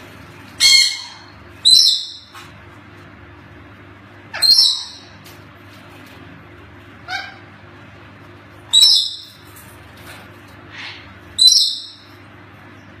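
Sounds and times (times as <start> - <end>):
parrot calling: 0.5 - 2.5, 4.3 - 5.3, 7.0 - 7.6, 8.6 - 9.5, 10.6 - 12.2.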